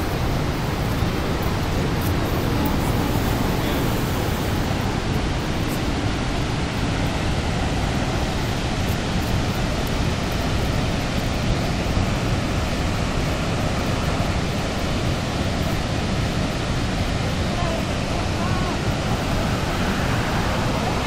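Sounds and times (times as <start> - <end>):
waterfall roaring: 0.0 - 21.0.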